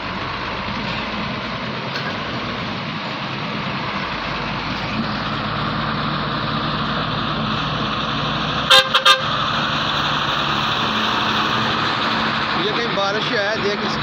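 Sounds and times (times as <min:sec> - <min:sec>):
vehicle engine and road noise: 0:00.0 - 0:14.0
vehicle horn toots: 0:08.7 - 0:09.3.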